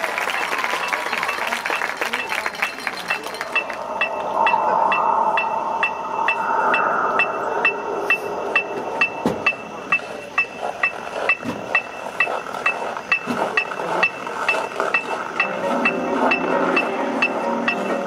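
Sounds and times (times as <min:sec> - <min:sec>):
soft sustained sound: 0:02.1 - 0:10.8
woodblock-like percussion tick: 0:10.4 - 0:17.9.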